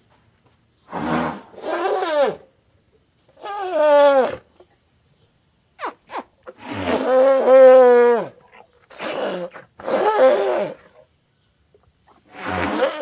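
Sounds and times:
elephant calling: 0.9s - 2.5s, 12.3s - 13.0s.

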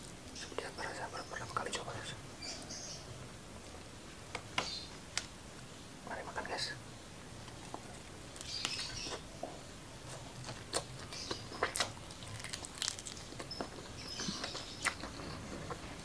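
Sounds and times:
chewing food: 7.6s - 16.0s
mouth smacks and clicks: 13.4s - 15.2s.

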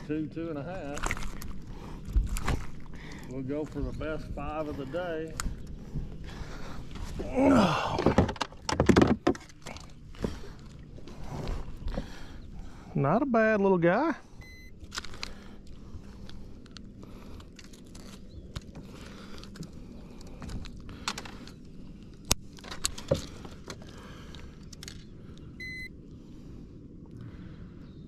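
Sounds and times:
digital scale beep: 14.4s - 14.7s, 25.6s - 25.9s.

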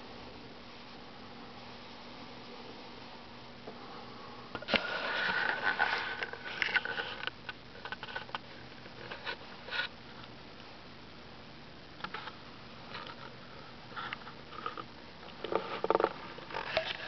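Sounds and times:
steady whine: 0.0s - 17.0s
rustling: 4.6s - 10.4s.

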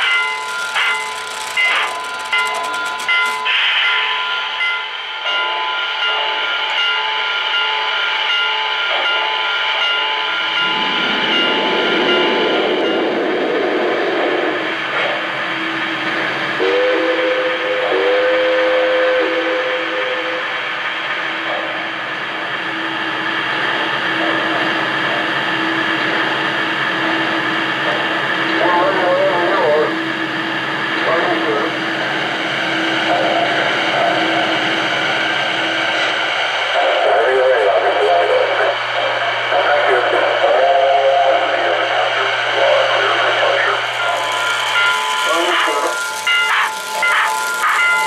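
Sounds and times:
model train wheels rumbling: 0.0s - 3.8s, 41.4s - 48.0s
model train running: 0.0s - 48.0s.

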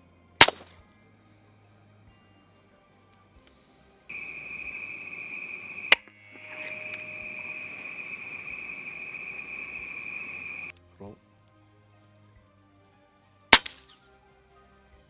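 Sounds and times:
crickets chirring: 0.0s - 15.0s
air rifle shot: 0.4s - 0.7s, 13.6s - 13.8s.

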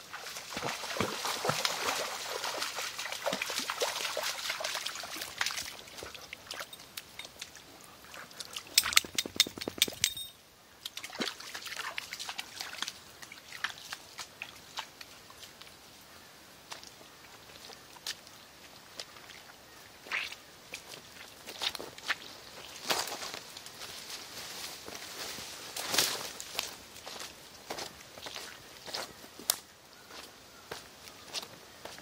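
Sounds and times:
water splashing and trickling: 0.0s - 16.0s
sharp clicks: 8.8s - 10.3s.

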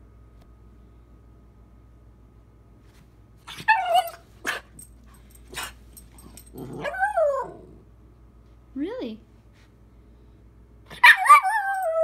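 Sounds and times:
puppy barking: 3.5s - 4.8s, 10.9s - 11.8s.

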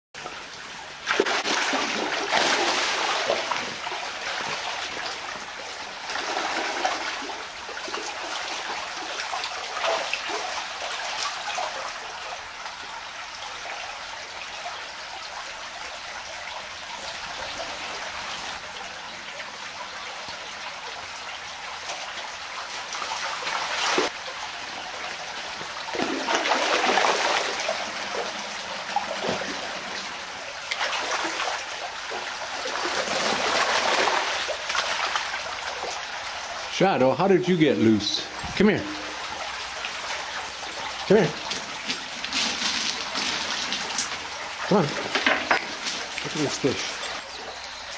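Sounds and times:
stream water trickling: 0.2s - 47.9s
fish splashing in shallows: 25.8s - 30.1s.

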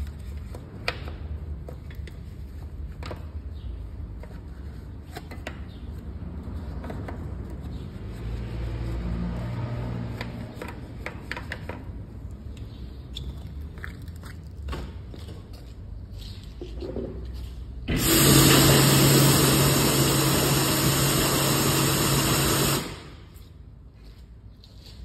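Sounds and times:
brushes scrubbing a wheel: 4.2s - 12.1s.

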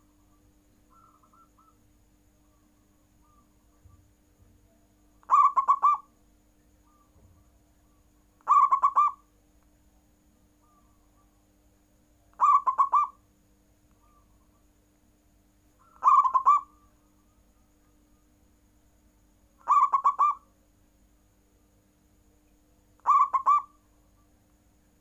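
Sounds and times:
dove cooing: 0.9s - 1.8s, 5.2s - 6.1s, 8.4s - 9.2s, 12.4s - 13.2s, 15.8s - 16.9s, 19.6s - 20.4s, 23.0s - 23.8s.

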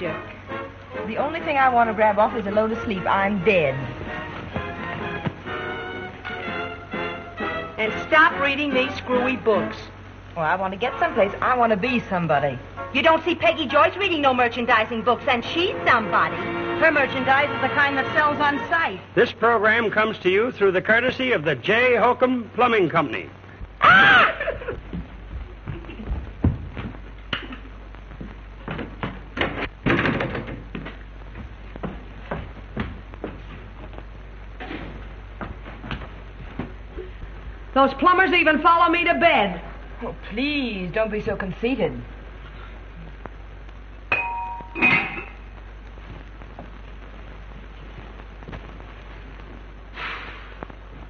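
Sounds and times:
film soundtrack hiss and crackle: 0.0s - 51.0s
knocks and thumps: 4.4s - 5.5s, 24.8s - 37.6s.

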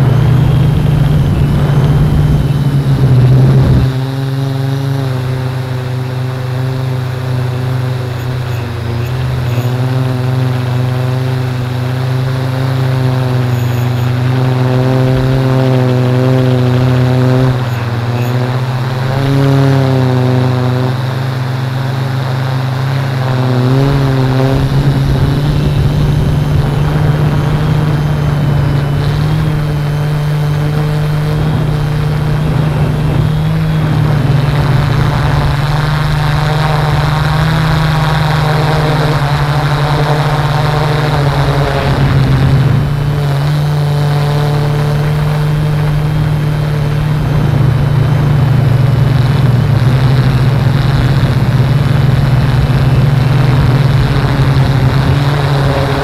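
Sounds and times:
low rumble: 0.0s - 4.0s
drone propellers humming: 0.0s - 56.0s.

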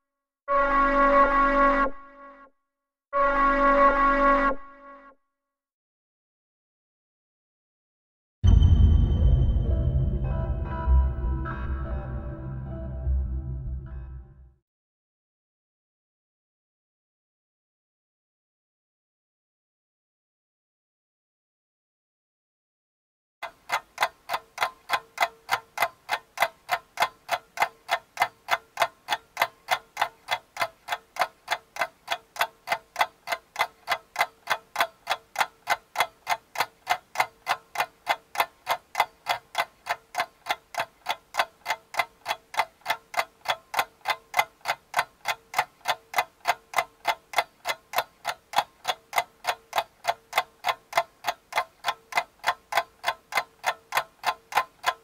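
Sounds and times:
clock ticking: 23.4s - 55.0s.

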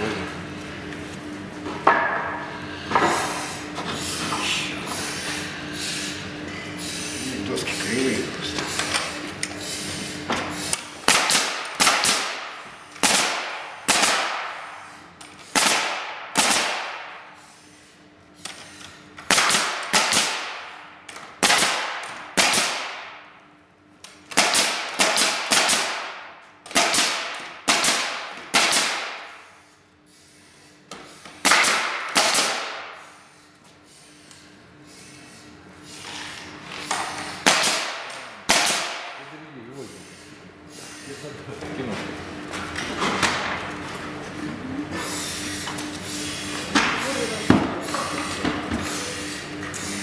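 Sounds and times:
nail gun firing into wood: 11.0s - 14.6s, 15.5s - 17.2s, 19.2s - 23.2s, 24.3s - 29.3s, 31.4s - 33.0s, 37.4s - 39.2s.

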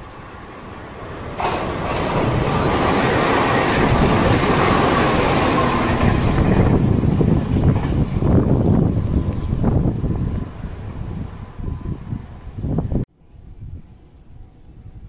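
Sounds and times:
electric train passing: 0.0s - 13.0s.

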